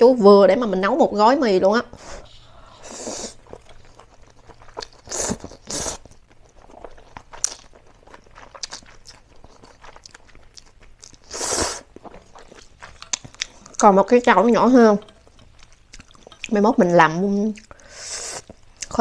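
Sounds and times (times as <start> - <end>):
wet chewing sounds: 2.0 - 19.0
person slurping noodles: 2.3 - 3.6, 4.8 - 6.0, 11.2 - 12.2, 17.8 - 18.5.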